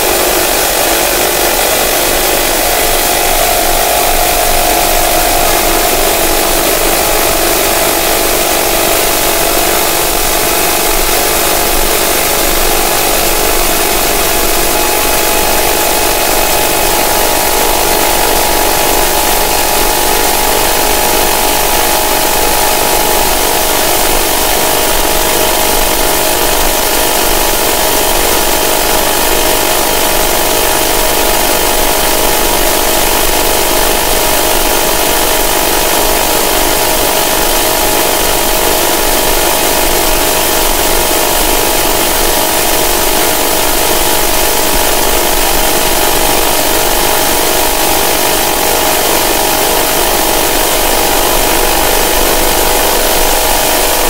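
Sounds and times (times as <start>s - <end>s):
steady droning tones: 0.0s - 54.0s.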